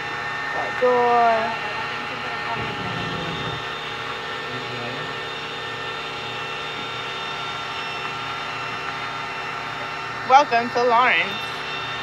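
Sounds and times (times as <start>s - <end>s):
mechanical hum: 0.0s - 12.0s
high whining tones: 2.5s - 12.0s.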